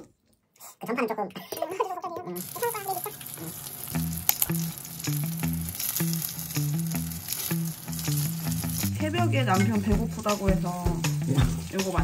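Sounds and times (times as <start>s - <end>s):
food sizzling: 2.4s - 12.0s
background music: 3.8s - 12.0s.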